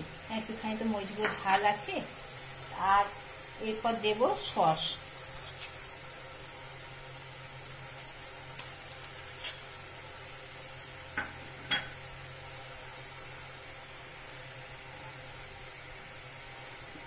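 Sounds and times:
faint steady sizzle: 0.0 - 17.0.

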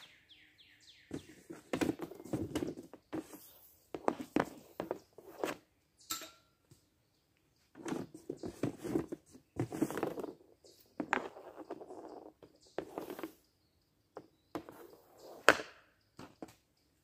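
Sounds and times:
puck taps and knocks: 14.2 - 16.6.

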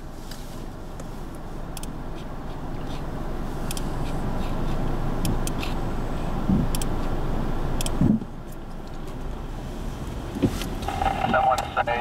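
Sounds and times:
car and road rumble: 0.0 - 12.0
sharp ticks: 6.7 - 6.9.

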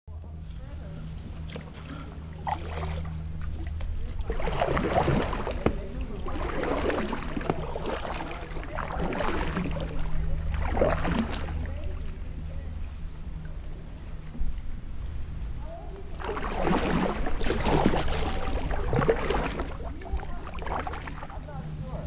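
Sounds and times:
steady low hum: 0.1 - 22.0
kayak paddle strokes: 0.4 - 22.0
water splashing and dripping: 1.3 - 12.0, 16.1 - 21.4.

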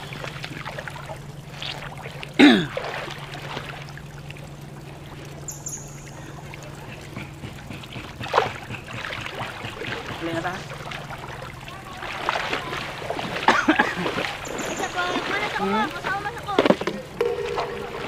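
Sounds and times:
seawater splashing around people: 0.0 - 18.0
steady low hum: 0.0 - 18.0.

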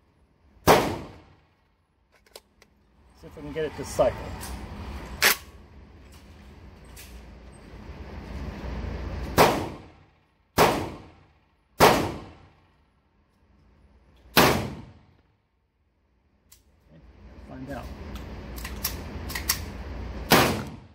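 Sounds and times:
shotgun shots echoing indoors: 0.6 - 1.4, 10.6 - 12.6, 14.3 - 15.1, 20.3 - 20.9.

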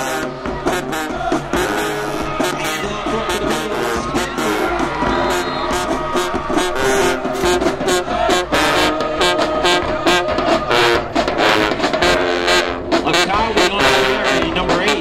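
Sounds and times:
brass band playing: 0.0 - 15.0
driving drum beat: 0.0 - 15.0.

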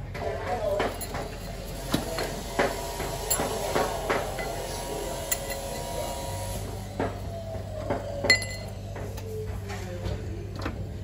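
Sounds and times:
metallic clinks of tools: 0.7 - 2.4, 3.2 - 3.6, 5.3 - 5.8.

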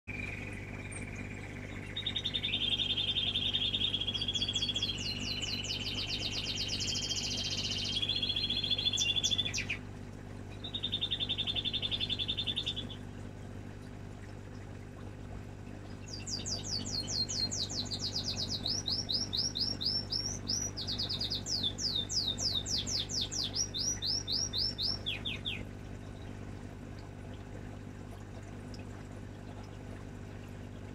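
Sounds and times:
songbird singing rapid trills: 0.1 - 9.8, 10.5 - 13.5, 15.9 - 26.5
steady low hum: 0.1 - 30.9.

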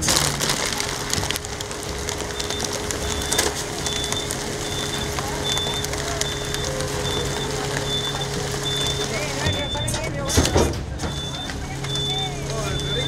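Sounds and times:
packaging crackling: 0.0 - 10.0
engine hum: 0.0 - 13.0
garbage truck compactor crushing: 0.0 - 13.0
high electronic beeper: 2.3 - 10.0, 11.1 - 13.0.

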